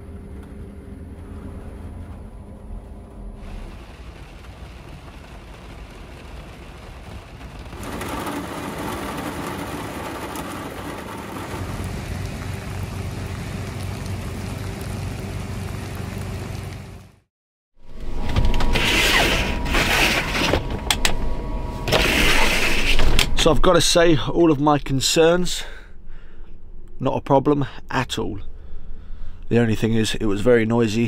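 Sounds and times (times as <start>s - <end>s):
low hum: 0.0s - 17.2s, 17.8s - 30.6s
heavy rain on a roof: 1.4s - 17.3s.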